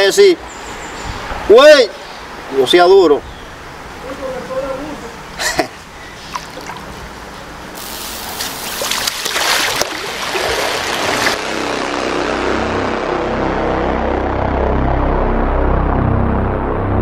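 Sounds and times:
hands splashing river water: 0:06.3 - 0:06.9, 0:08.4 - 0:11.4
stream rushing: 0:08.2 - 0:11.5
eerie background music: 0:11.4 - 0:17.0.

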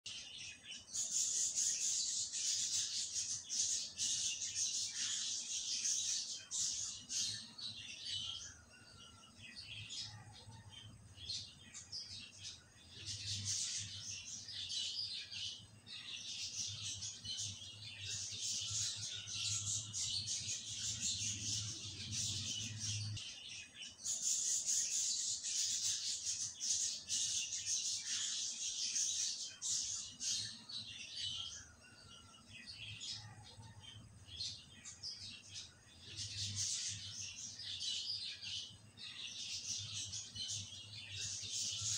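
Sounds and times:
small birds chirping: 0:00.0 - 0:41.9.

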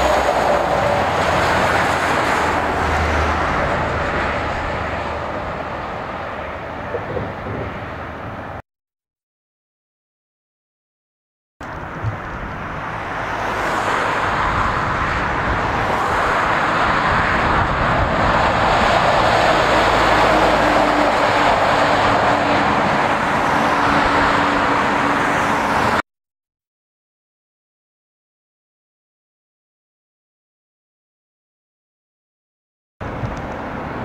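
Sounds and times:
road traffic: 0:00.0 - 0:08.6, 0:11.6 - 0:26.0, 0:33.0 - 0:34.0.

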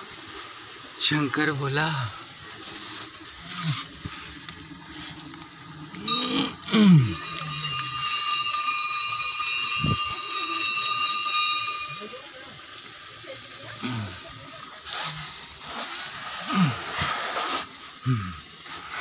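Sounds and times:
metal bell ringing: 0:06.0 - 0:12.6.

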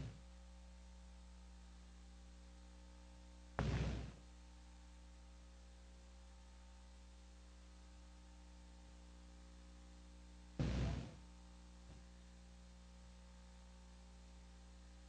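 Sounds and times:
faint electrical hum: 0:00.0 - 0:15.0
loud burst of noise: 0:03.6 - 0:04.2, 0:10.6 - 0:11.2.

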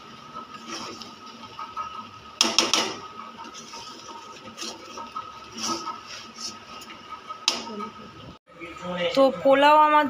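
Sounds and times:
spoon scraping metal pot: 0:03.0 - 0:08.0.

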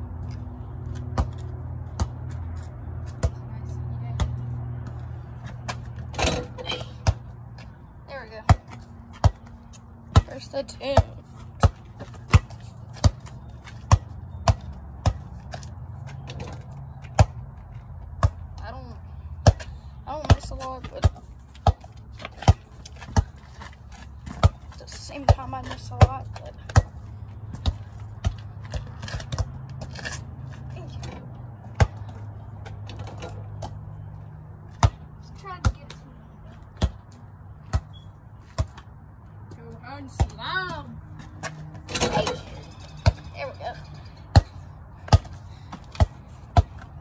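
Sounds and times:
ball bouncing on concrete: 0:00.2 - 0:34.1, 0:34.7 - 0:47.0
ball hitting basketball hoop: 0:41.8 - 0:46.8.

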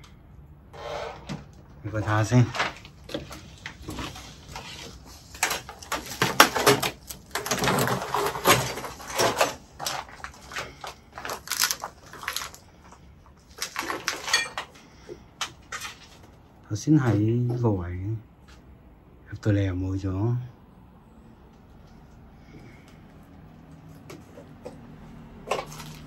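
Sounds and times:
hard objects clattering and knocking: 0:02.5 - 0:16.4.

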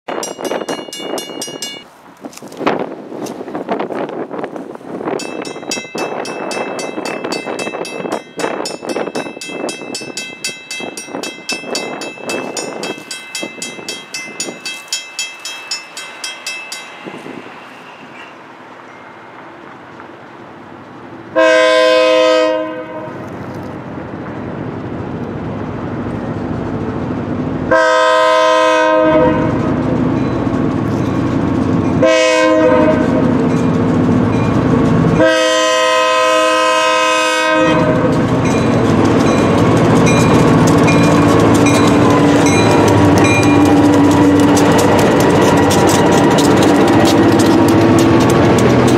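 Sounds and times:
crossing warning bell ringing: 0:00.1 - 0:01.9, 0:05.0 - 0:19.7, 0:28.0 - 0:48.9
diesel locomotive rumble: 0:00.2 - 0:48.9
locomotive horn blasts: 0:21.4 - 0:23.2, 0:27.7 - 0:29.6, 0:32.0 - 0:33.2, 0:35.2 - 0:38.1.

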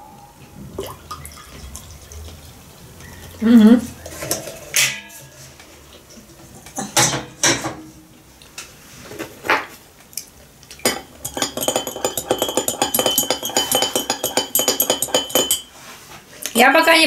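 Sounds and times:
metal kettle clanking on stove: 0:10.8 - 0:15.7
teaspoon clinking in glass mug: 0:10.8 - 0:15.7.

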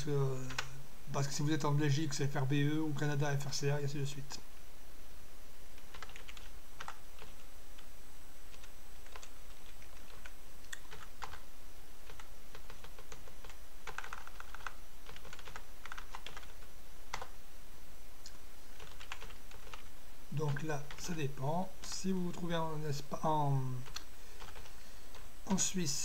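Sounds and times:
steady low hum: 0:00.0 - 0:26.0
typing on computer keyboard: 0:00.5 - 0:00.7, 0:05.8 - 0:07.4, 0:08.5 - 0:11.4, 0:12.0 - 0:17.3, 0:18.8 - 0:19.9, 0:23.8 - 0:25.2.

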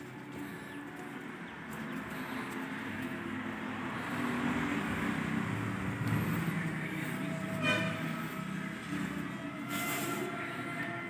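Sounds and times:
vehicle engine rumbling: 0:00.0 - 0:11.0
horn toot: 0:07.4 - 0:11.0.

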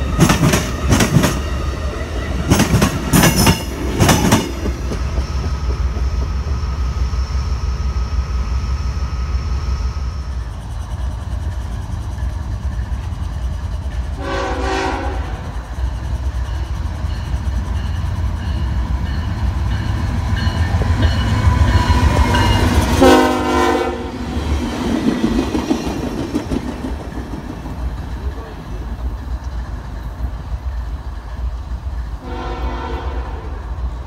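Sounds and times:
train rumbling on tracks: 0:00.0 - 0:34.0
locomotive horn blasts: 0:14.2 - 0:15.5, 0:22.9 - 0:24.2, 0:32.2 - 0:33.6.

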